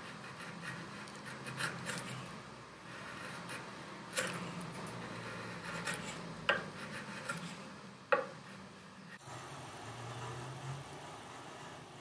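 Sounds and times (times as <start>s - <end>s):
chisel paring wood: 0.2s - 2.3s, 3.1s - 8.4s.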